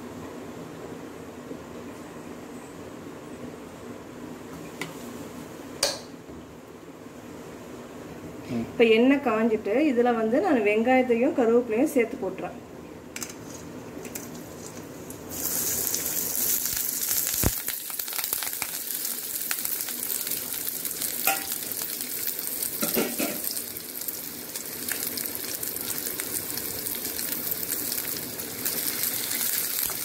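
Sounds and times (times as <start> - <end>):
onions sizzling in hot oil: 14.2 - 30.0.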